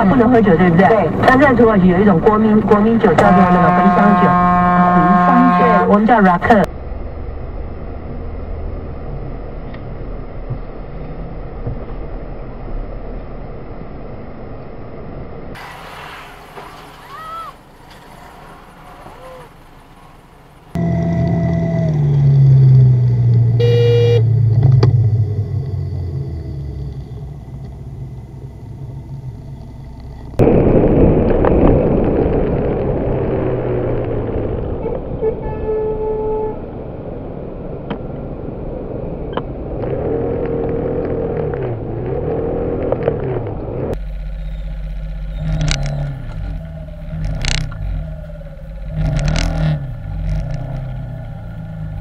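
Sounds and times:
road noise: 0.0 - 52.0
vehicle engine noise: 0.0 - 52.0
brief horn-like tones: 3.2 - 6.0, 23.6 - 24.3
car horn toot: 3.2 - 6.0, 23.6 - 24.4, 34.8 - 36.6.

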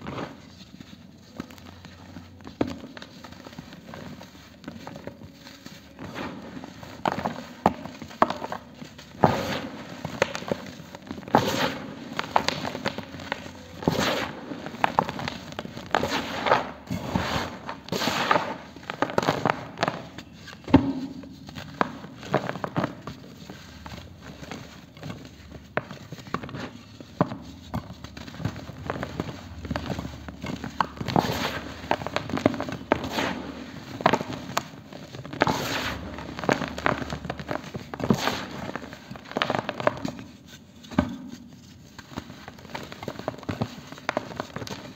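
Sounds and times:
powder sifting hiss: 9.3 - 19.7, 29.0 - 39.8.

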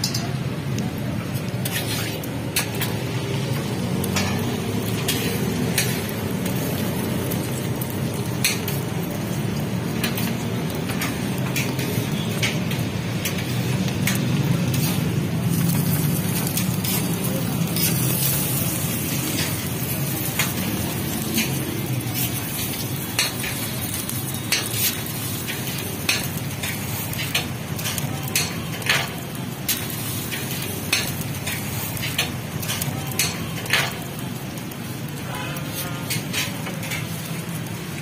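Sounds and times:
food sizzling on a griddle: 0.0 - 38.0
metal spatula scraping and tapping: 1.6 - 3.0, 3.6 - 6.1, 8.4 - 8.8, 10.0 - 15.7, 16.3 - 17.1, 24.3 - 34.0, 35.7 - 37.2.

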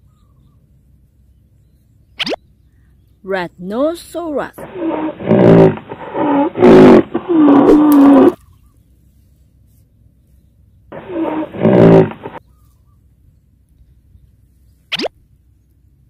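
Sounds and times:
rhinoceros bellowing call: 4.6 - 8.4, 10.9 - 12.4.

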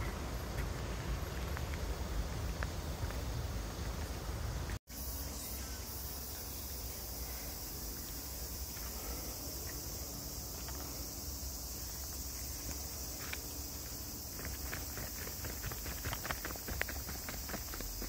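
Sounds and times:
insects chirping: 0.0 - 18.0
footsteps: 11.8 - 18.0.

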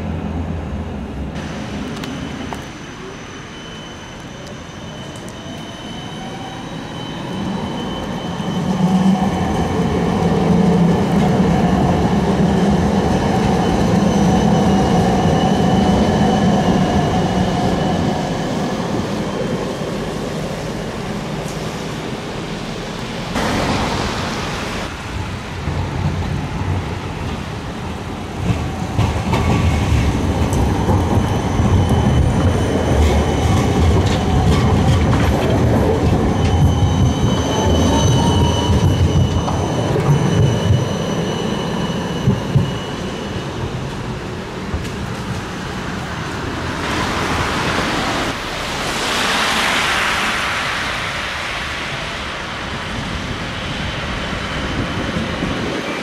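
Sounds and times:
tram wheels rumbling on rails: 0.0 - 56.0
brief rushing noise: 47.5 - 53.7.

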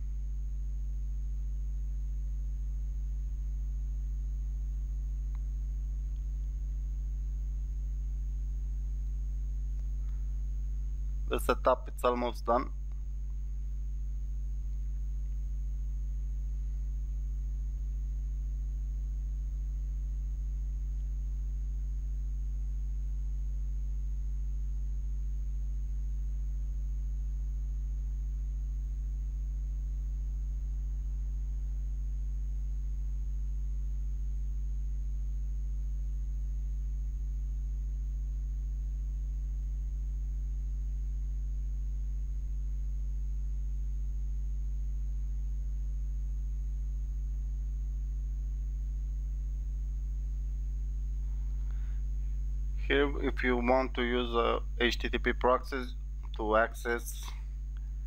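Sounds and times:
electrical mains hum: 0.0 - 58.0
faint high-pitched whine: 0.0 - 58.0
faint ticks: 5.2 - 6.6, 9.0 - 10.5, 20.7 - 21.8.

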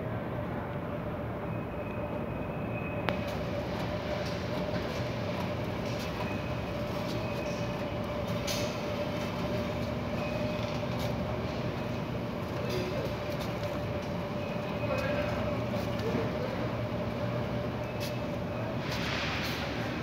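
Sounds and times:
supermarket background hum: 0.0 - 20.0.

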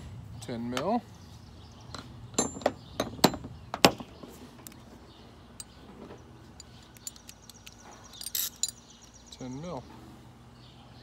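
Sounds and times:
sharp metal click: 6.6 - 8.8.

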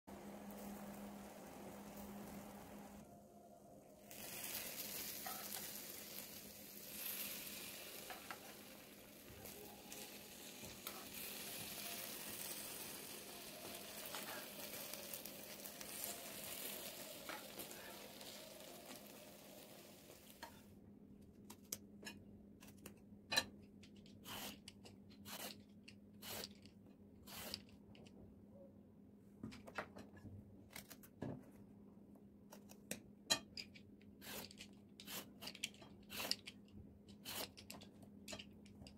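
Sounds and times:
roasted vegetables sizzling: 0.1 - 3.1, 3.9 - 20.6.

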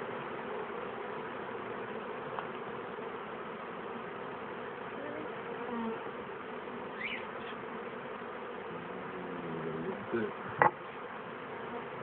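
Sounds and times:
bees buzzing: 0.0 - 12.0
single bees droning past: 0.0 - 12.0.

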